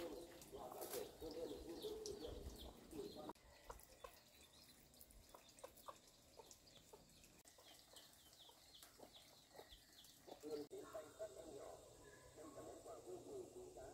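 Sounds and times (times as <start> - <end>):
chicks chirping: 7.6 - 10.4.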